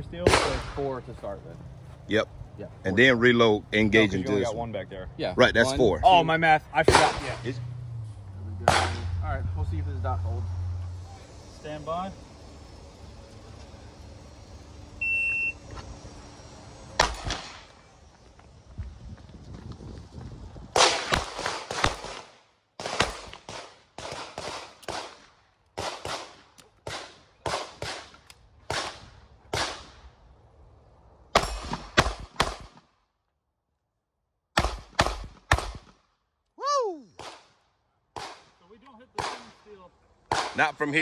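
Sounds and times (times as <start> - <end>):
handgun shots: 8.6 - 9.1, 31.4 - 32.8.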